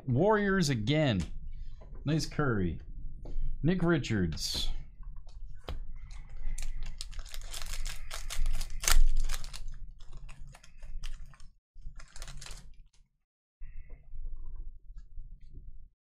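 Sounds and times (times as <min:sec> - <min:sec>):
plastic wrapper tearing and crinkling: 0:06.6 - 0:12.8.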